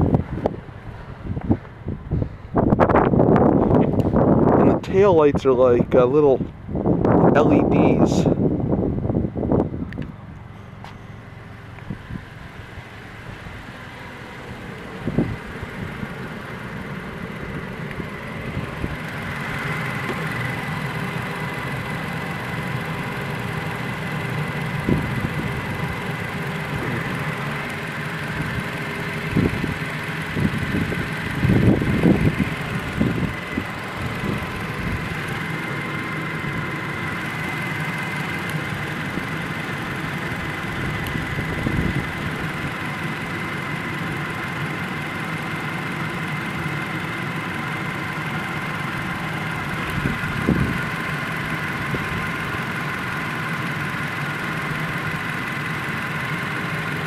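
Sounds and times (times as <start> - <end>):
pickup engine idling: 0.0 - 57.0.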